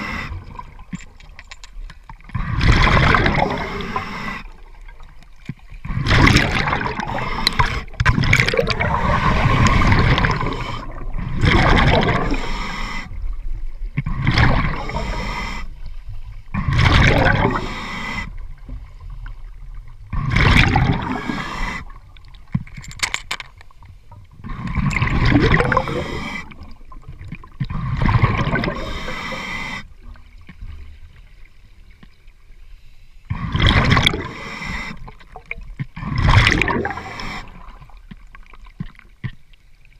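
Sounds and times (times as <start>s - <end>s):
diver breathing through regulator: 0.0s - 0.6s, 3.4s - 4.6s, 5.8s - 11.2s, 12.0s - 13.2s, 14.0s - 18.4s, 20.1s - 22.1s, 24.4s - 26.7s, 27.6s - 30.1s, 32.9s - 35.2s, 36.0s - 37.8s
exhaled bubbles rushing: 2.3s - 5.1s, 5.8s - 12.5s, 14.1s - 15.2s, 16.6s - 17.8s, 19.4s - 22.2s, 24.4s - 29.1s, 33.4s - 34.4s, 35.0s - 38.0s.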